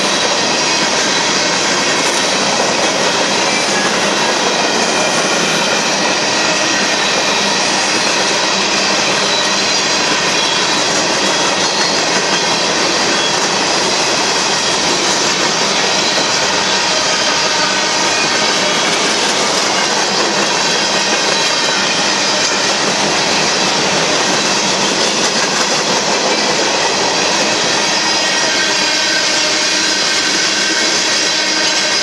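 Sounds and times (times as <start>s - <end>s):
freight train rolling past: 0.0s - 32.0s.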